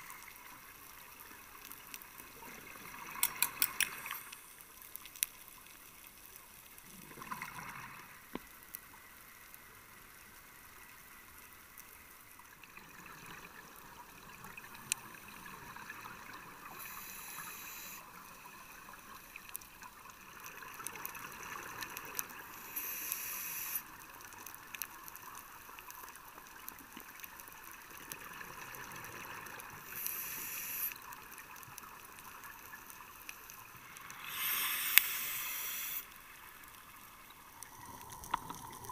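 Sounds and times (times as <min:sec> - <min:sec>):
faint clicks: 0:00.0 - 0:12.8, 0:15.9 - 0:38.9
low underwater hiss: 0:00.0 - 0:38.9
scuba regulator hissing: 0:30.0 - 0:30.9, 0:34.2 - 0:36.1.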